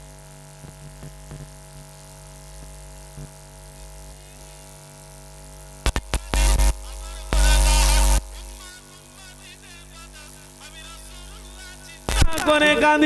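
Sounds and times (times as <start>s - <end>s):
electrical hum from loudspeakers: 0.0s - 13.0s
sharp clicks: 5.8s - 6.5s
distorted loudspeaker burst: 5.9s - 13.0s.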